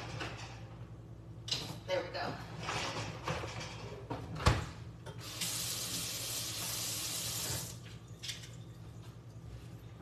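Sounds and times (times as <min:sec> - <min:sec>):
water running from tap: 0:05.2 - 0:07.8.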